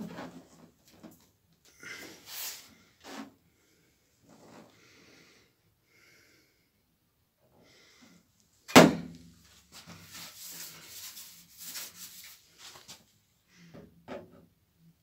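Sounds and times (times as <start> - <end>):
hand rubbing painted panel: 9.8 - 13.0.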